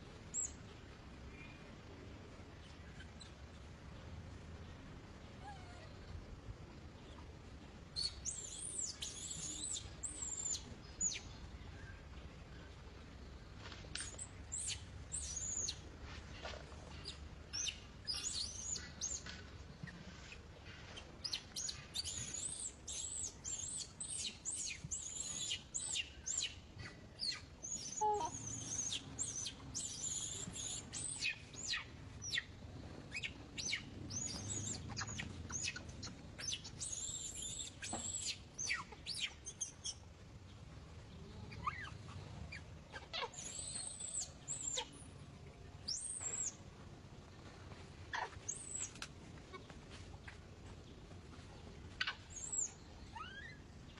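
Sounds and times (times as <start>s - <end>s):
baby monkey screaming: 42.9s - 44.9s, 52.0s - 53.6s.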